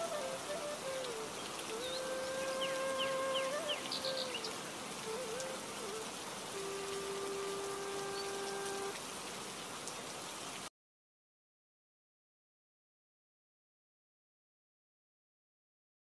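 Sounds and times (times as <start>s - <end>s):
long whistle-like notes: 0.0s - 9.0s
steady rain-like hiss: 0.0s - 10.7s.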